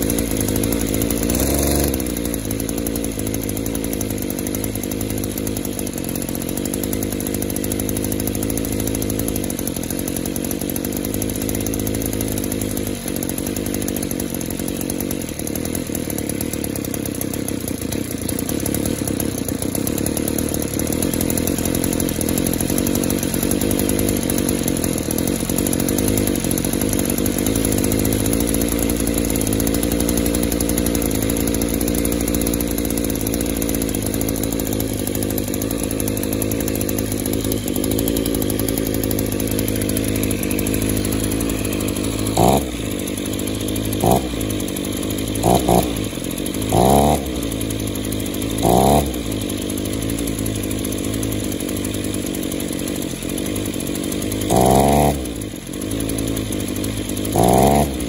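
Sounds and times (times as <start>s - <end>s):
two-stroke edger engine revving: 0.0s - 58.0s.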